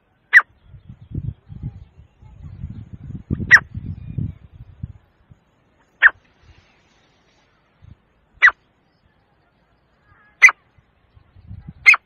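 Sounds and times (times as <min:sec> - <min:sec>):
francolin calling: 0:05.6 - 0:10.8, 0:11.8 - 0:12.0.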